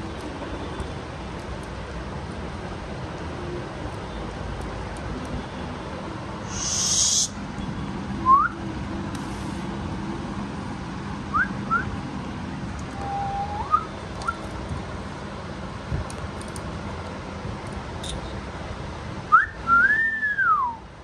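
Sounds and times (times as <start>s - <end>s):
upward sliding whistles: 6.5s - 7.3s, 13.0s - 14.4s, 19.4s - 20.8s.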